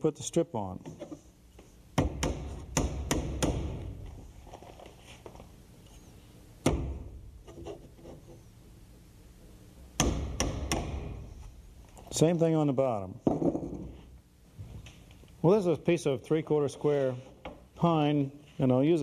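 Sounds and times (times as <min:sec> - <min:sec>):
hammer driving nails into wood: 0:02.0 - 0:03.9, 0:10.0 - 0:11.2.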